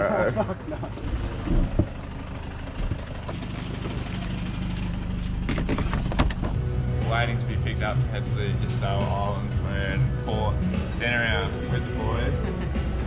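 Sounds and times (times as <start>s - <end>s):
van engine running: 0.0s - 13.0s
gear knocking and clattering: 0.9s - 6.6s.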